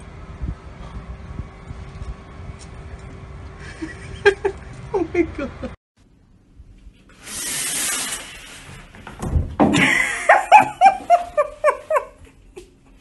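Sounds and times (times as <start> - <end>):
person laughing: 3.6 - 5.8, 9.7 - 12.7.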